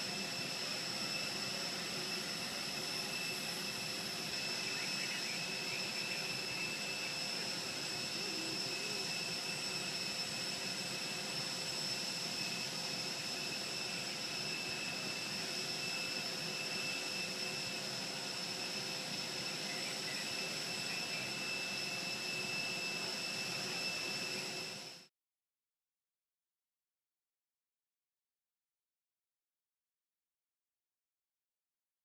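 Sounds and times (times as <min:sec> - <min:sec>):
jet turbine whine and roar: 0:00.0 - 0:25.1.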